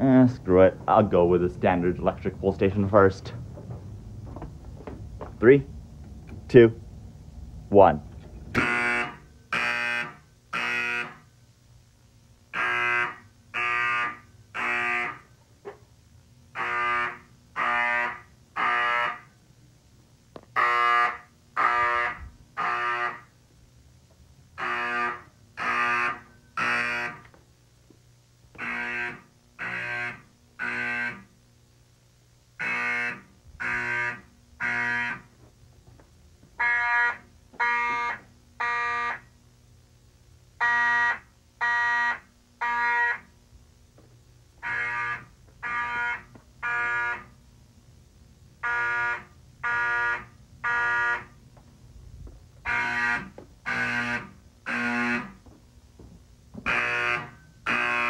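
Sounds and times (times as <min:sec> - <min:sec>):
fire alarm horns blasting: 0:08.5 - 0:11.3, 0:12.5 - 0:15.4, 0:16.5 - 0:19.4, 0:20.5 - 0:23.3, 0:24.5 - 0:27.4, 0:28.6 - 0:31.3, 0:32.6 - 0:35.4, 0:36.5 - 0:39.3, 0:40.6 - 0:43.4, 0:44.6 - 0:47.4, 0:48.6 - 0:51.4, 0:52.6 - 0:55.5, 0:56.6 - 0:58.0.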